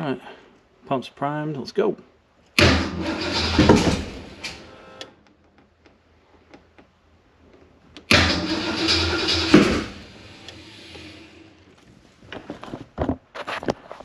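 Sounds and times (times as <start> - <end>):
starter cranking engine: 2.6 - 5.1, 8.1 - 11.7.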